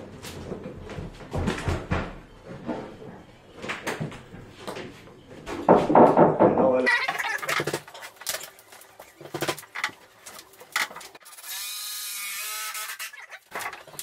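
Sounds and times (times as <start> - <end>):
timber knocking and clattering: 5.5 - 11.2.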